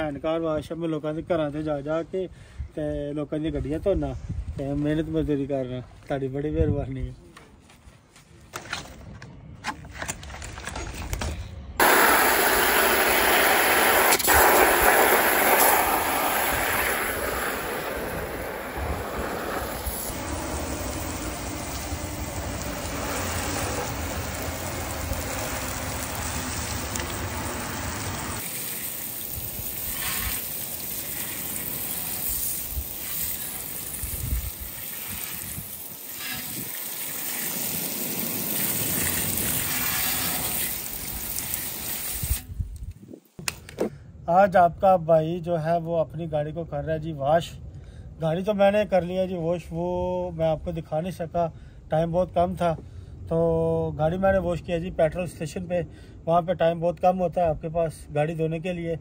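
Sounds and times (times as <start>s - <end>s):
hose spray hissing on car: 11.8s - 42.6s.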